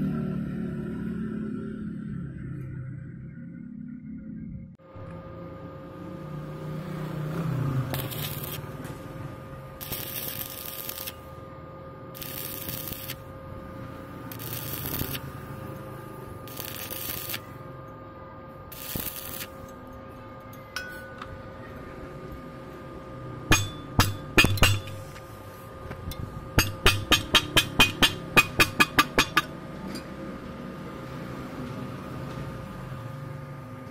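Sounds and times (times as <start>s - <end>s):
welding arc crackling: 7.2s - 11.4s, 12.1s - 17.8s, 18.6s - 19.8s, 23.5s - 25.5s, 26.5s - 29.5s
sharp metallic clinks: 20.5s - 21.3s, 23.5s - 25.0s.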